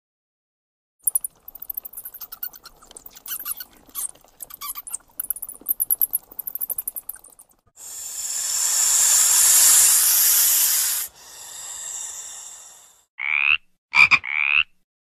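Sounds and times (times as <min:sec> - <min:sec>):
bats squeaking and chittering: 0:01.0 - 0:07.6
steady hiss: 0:07.8 - 0:13.0.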